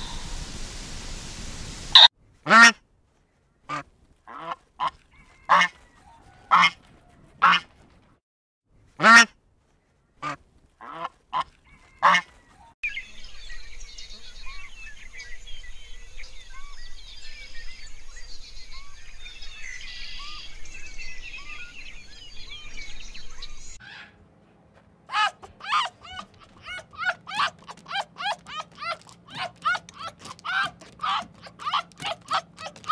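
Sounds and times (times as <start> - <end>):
waterfowl honking: 2.0 - 2.8, 3.7 - 7.7, 10.2 - 12.4, 25.1 - 32.9.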